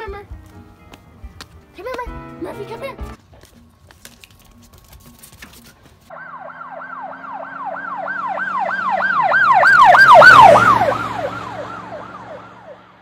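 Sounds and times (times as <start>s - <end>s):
siren yelping: 6.1s - 13.0s
vehicle low hum: 6.1s - 13.0s.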